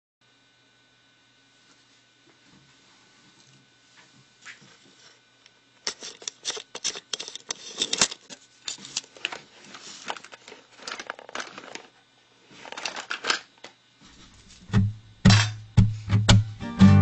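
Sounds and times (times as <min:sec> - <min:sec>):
handling clicks and rustles: 0:05.9 - 0:12.0
guitar music: 0:14.7 - 0:17.0.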